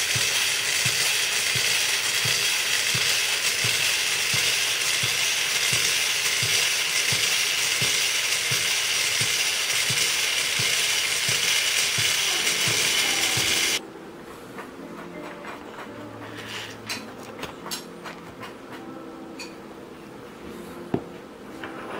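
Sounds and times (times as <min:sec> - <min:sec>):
small electric motor whirring: 0:00.0 - 0:13.8.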